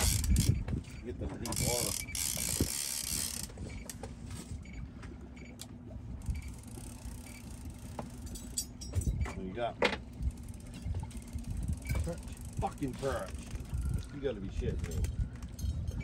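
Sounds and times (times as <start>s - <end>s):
fishing reel gears clicking: 0.0s - 0.6s, 1.5s - 3.9s, 6.2s - 8.8s, 10.2s - 13.9s
low steady hum: 0.0s - 16.0s.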